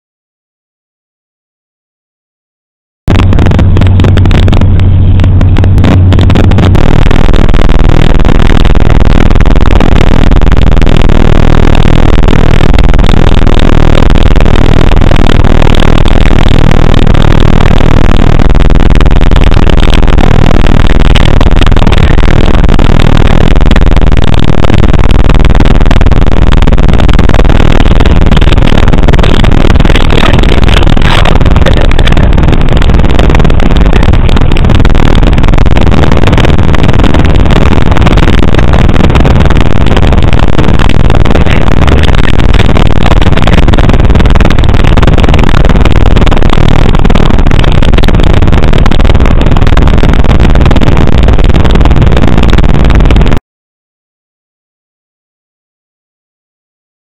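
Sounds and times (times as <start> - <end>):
car engine: 3.1 - 46.9
road noise inside car: 3.1 - 53.3
wind noise: 3.1 - 53.4.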